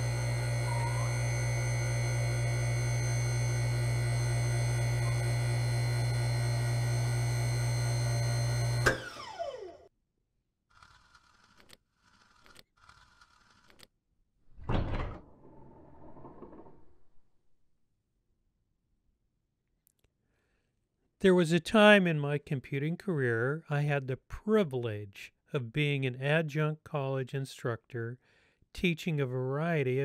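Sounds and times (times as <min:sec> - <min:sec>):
electronic drone hum: 0:00.0 - 0:06.6
safe door sliding thunk: 0:14.6 - 0:17.0.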